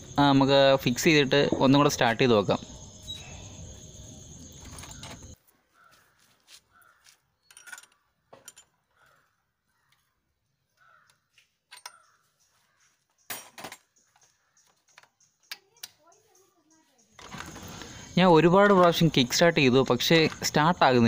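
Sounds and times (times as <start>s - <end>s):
faint bird calls: 2.6s - 8.2s, 8.8s - 13.1s.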